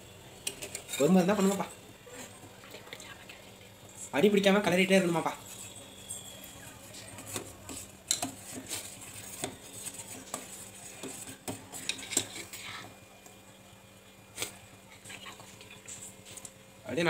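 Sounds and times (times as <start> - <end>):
ladle scraping metal pot: 0.4 - 2.4, 5.3 - 12.9.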